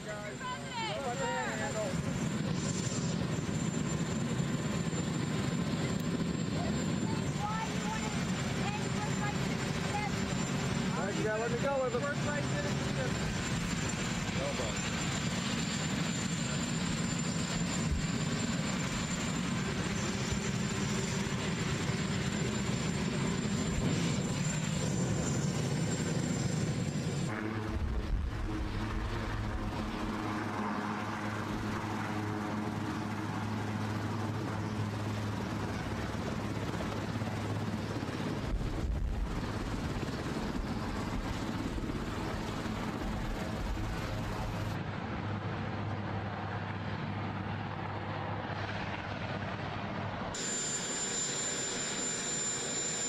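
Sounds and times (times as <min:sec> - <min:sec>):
helicopter engine and rotors: 0:00.0 - 0:53.0
low hum: 0:27.3 - 0:30.3.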